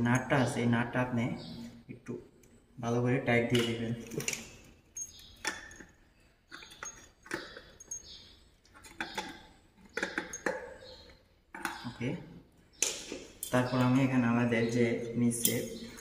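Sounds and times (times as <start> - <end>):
pliers clicking on metal bolt: 15.4 - 15.7.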